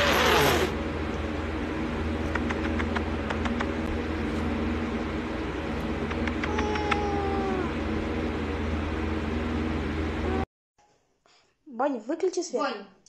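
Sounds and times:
cat growling: 0:06.2 - 0:07.8.

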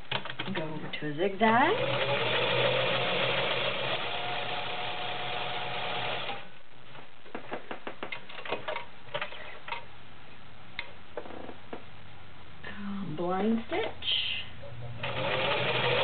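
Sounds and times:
sewing machine running: 0:01.6 - 0:06.5, 0:15.0 - 0:16.0.

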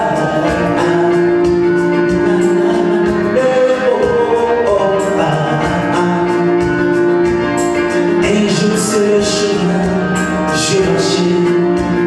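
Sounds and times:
man singing worship song: 0:00.0 - 0:06.7, 0:08.2 - 0:12.0
instrumental accompaniment: 0:00.0 - 0:12.0.

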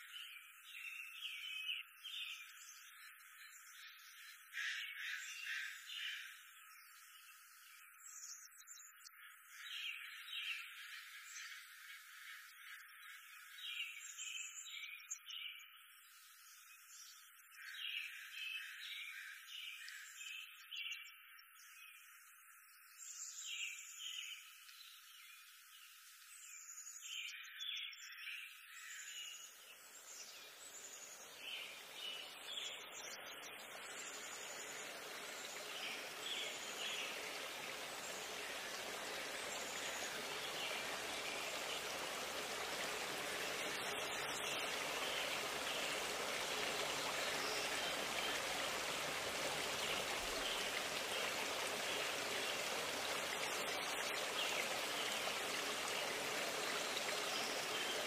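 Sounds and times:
flowing water rushing: 0:29.7 - 0:58.0.

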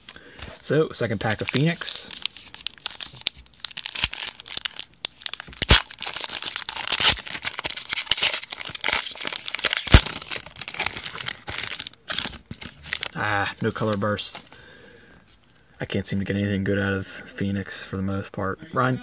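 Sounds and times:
foil wrapper tearing and crinkling: 0:01.0 - 0:13.2.

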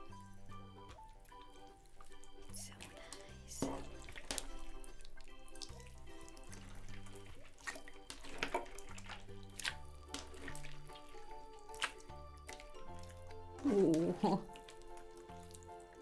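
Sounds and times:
background music: 0:00.0 - 0:16.0
slime squeezed wet clicks: 0:07.6 - 0:13.3.

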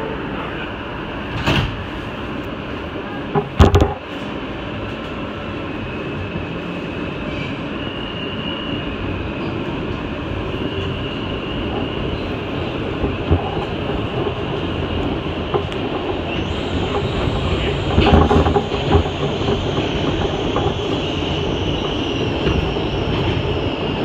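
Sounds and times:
subway wheels rumbling on rail: 0:00.0 - 0:24.0
clacks of train wheels: 0:10.6 - 0:24.0.

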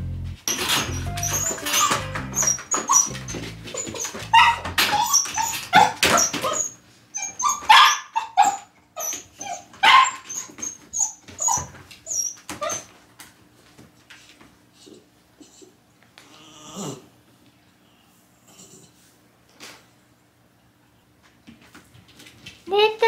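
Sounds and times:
puppy whining and yipping: 0:00.7 - 0:12.9.

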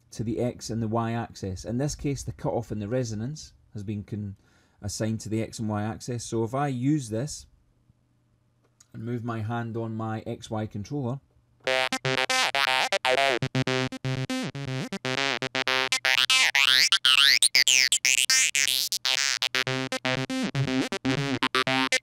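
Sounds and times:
synthesizer repeating notes: 0:11.6 - 0:22.0.

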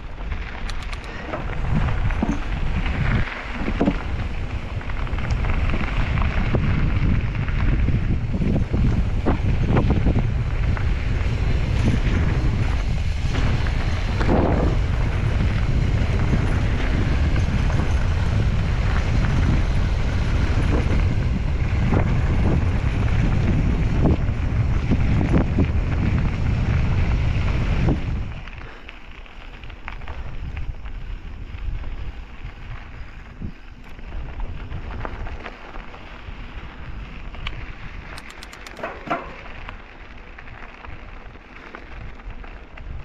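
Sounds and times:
wind buffeting microphone: 0:00.0 - 0:28.7, 0:29.6 - 0:43.0
bike rattling: 0:00.0 - 0:43.0
tyres crunching on gravel: 0:00.0 - 0:43.0
clicks: 0:00.6 - 0:01.4, 0:37.4 - 0:39.6.

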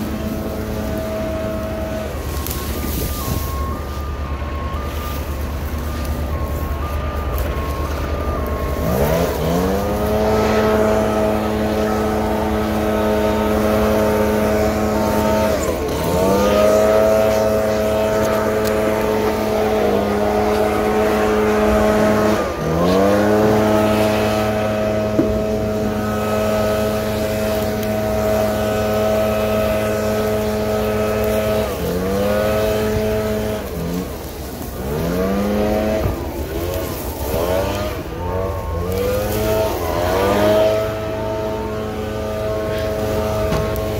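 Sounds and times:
diesel truck engine revving: 0:00.0 - 0:43.9
reversing beeps: 0:00.4 - 0:26.6.

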